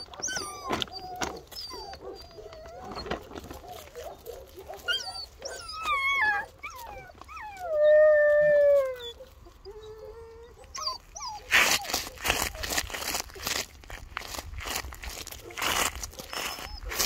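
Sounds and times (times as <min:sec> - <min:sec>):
puppy whining and yelping: 0:00.0 - 0:13.6, 0:16.2 - 0:17.0
packaging crinkling: 0:11.4 - 0:17.0.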